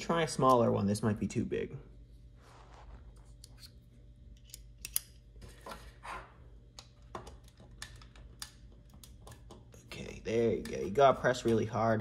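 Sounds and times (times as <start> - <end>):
screwdriver bits clicking: 4.4 - 5.1.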